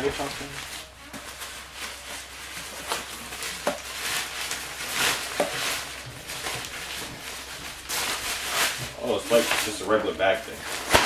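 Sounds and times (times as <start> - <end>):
fabric bag rustling: 0.0 - 11.0
plastic wrapping crinkling: 0.0 - 11.0.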